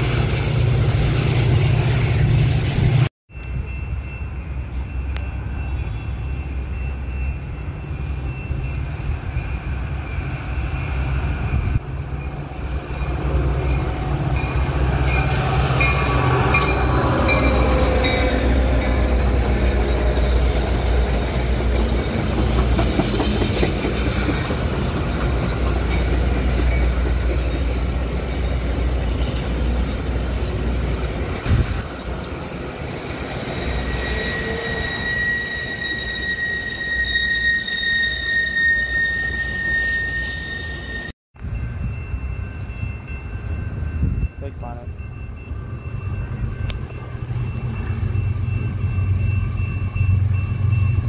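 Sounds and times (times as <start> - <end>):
train rumbling and clattering: 0.0 - 36.9, 39.5 - 51.0
high wheel squeal: 33.1 - 41.1.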